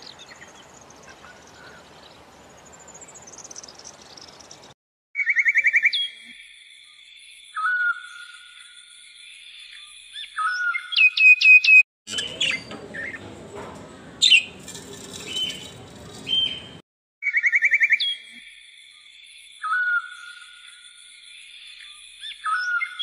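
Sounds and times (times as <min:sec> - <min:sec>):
birds chirping and whistling: 0:07.5 - 0:08.7, 0:09.7 - 0:13.3, 0:14.0 - 0:18.2, 0:21.8 - 0:23.0
fast bird trill: 0:14.2 - 0:18.0.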